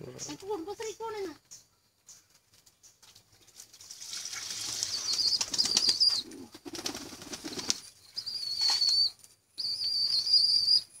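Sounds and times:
pigeon wings flapping: 3.4s - 7.9s
high whistled squeals: 7.8s - 11.0s.

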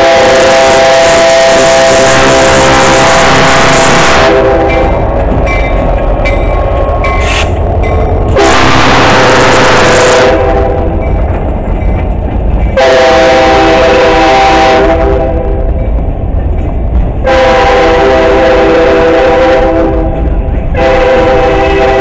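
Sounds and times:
locomotive horn blasts: 0.0s - 5.0s, 8.3s - 11.0s, 12.8s - 15.6s, 17.2s - 22.0s
freight cars rumbling and clattering: 0.4s - 22.0s.

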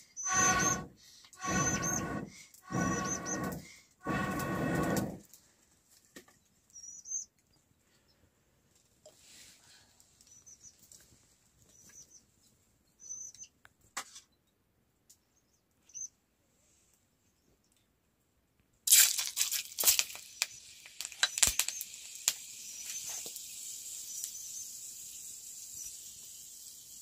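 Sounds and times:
breath puff through blowpipe: 0.2s - 5.2s.

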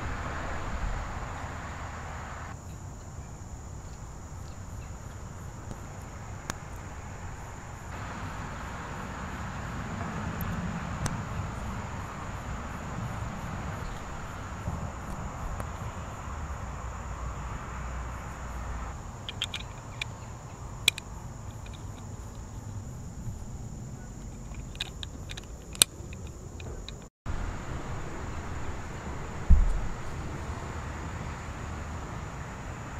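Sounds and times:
low rumble: 0.0s - 2.5s, 27.3s - 31.5s
high insect drone: 0.0s - 32.9s.

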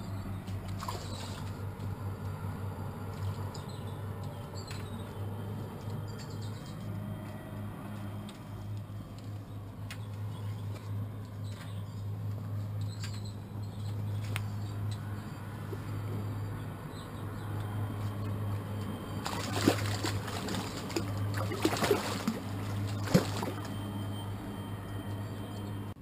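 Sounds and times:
steady low hum: 0.0s - 26.0s
water splashing and sloshing: 0.5s - 1.9s, 18.0s - 24.3s.

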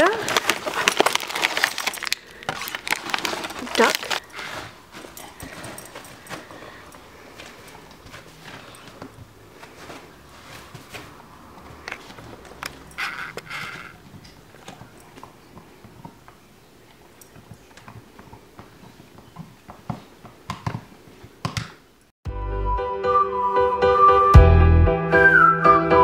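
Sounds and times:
short raspy sounds: 13.0s - 14.0s.

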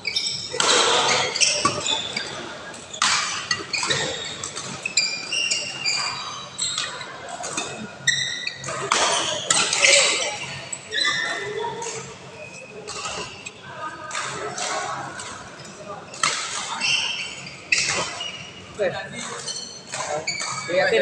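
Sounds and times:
shoes squeaking on court floor: 0.0s - 21.0s.

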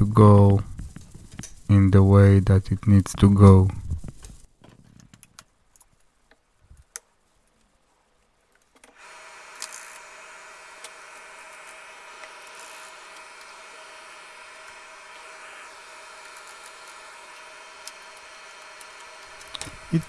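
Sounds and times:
faint clicks of small metal parts: 4.1s - 7.7s
projector motor humming: 8.8s - 20.0s.

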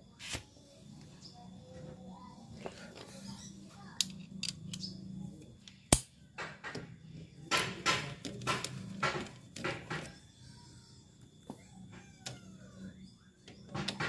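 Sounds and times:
sharp metallic click: 5.9s - 6.2s.

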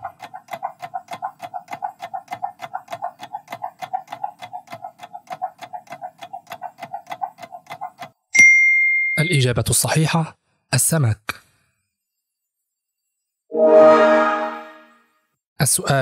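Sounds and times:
fast clock-like ticks: 0.0s - 8.3s.

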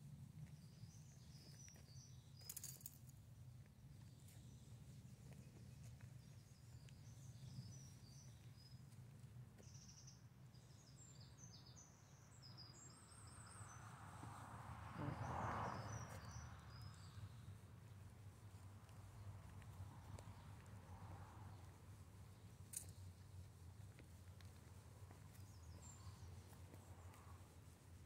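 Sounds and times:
small birds chirping: 0.4s - 3.0s, 3.6s - 13.7s, 21.5s - 28.0s.

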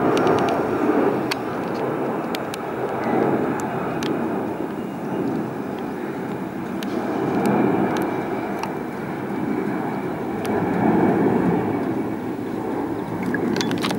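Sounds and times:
jetliner engines rumbling: 0.0s - 13.9s.

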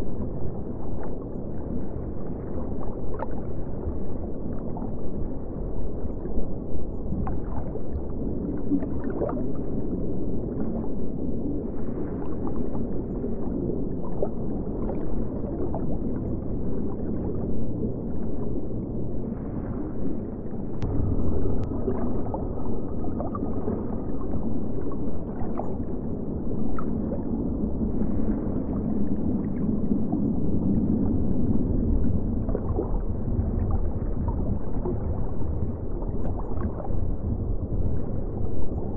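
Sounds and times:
underwater low rumble: 0.0s - 38.9s
water bubbling and gurgling: 0.0s - 38.9s.

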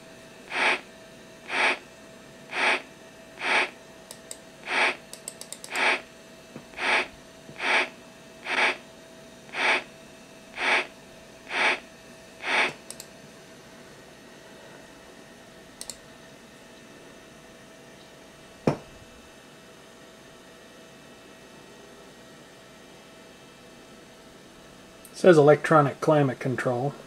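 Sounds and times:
short clicks: 3.4s - 6.0s, 12.4s - 13.1s, 15.8s - 16.0s.

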